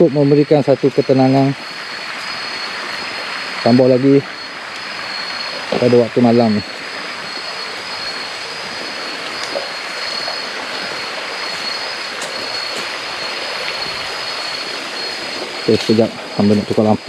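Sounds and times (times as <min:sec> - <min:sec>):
stream water flowing: 0:00.0 - 0:17.0
thin high-pitched tone: 0:05.2 - 0:06.7, 0:13.8 - 0:17.0.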